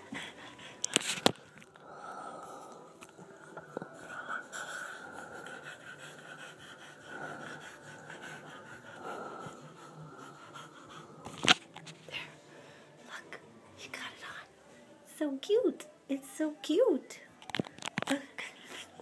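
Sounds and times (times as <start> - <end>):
dog panting: 0.0 - 1.5, 3.6 - 12.0.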